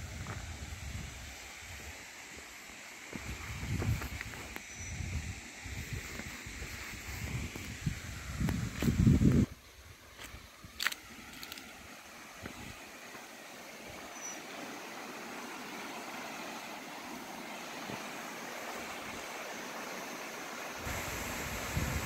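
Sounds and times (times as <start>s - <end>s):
wind buffeting microphone: 3.2s - 4.4s, 5.0s - 9.6s, 20.8s - 22.0s
distant waterfall rushing: 11.1s - 22.0s.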